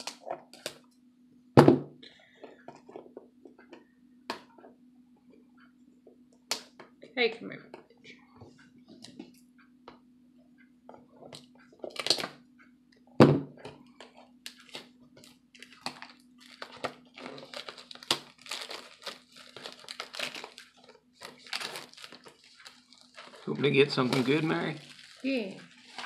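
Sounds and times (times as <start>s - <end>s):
cellophane crinkling: 11.8s - 12.3s, 14.4s - 26.0s.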